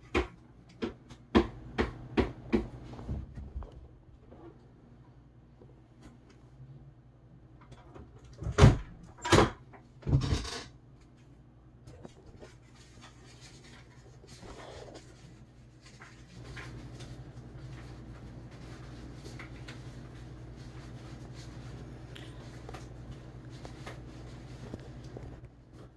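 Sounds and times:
low steady hum: 0.0 - 25.9.

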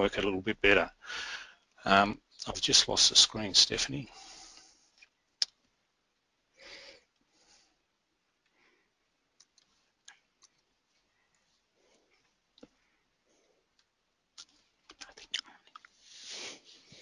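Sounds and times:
short breath: 1.0 - 1.6, 6.6 - 7.8
computer mouse clicks: 9.4 - 10.6.

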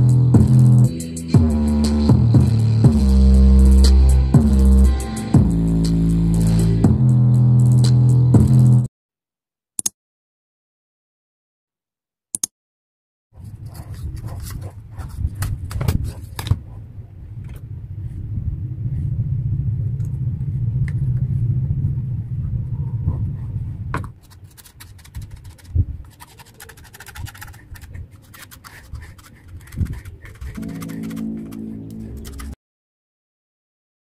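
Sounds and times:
pen scratching: 13.4 - 16.8, 24.1 - 32.6
low rumble: 16.5 - 23.9.

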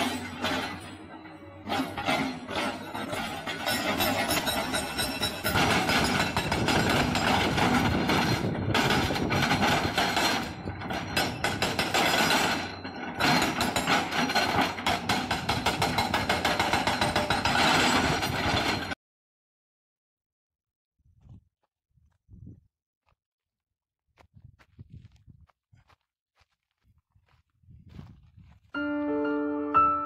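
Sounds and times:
hydraulic rock breaker hammering: 0.0 - 19.0.

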